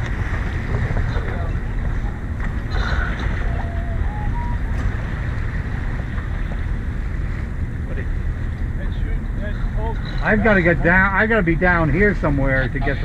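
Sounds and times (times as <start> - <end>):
water rushing along boat hull: 0.0 - 13.0
wind rumble on microphone: 0.0 - 13.0.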